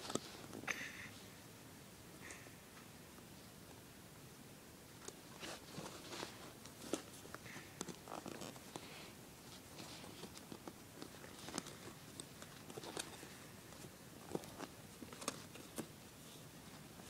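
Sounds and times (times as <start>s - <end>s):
fabric rustling: 5.2s - 17.0s.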